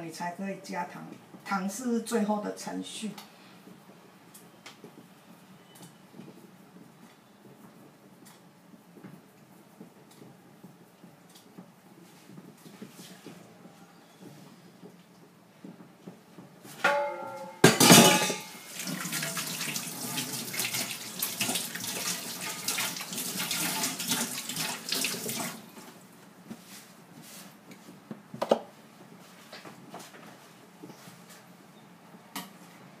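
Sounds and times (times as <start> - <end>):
metallic clank: 16.8 - 18.6.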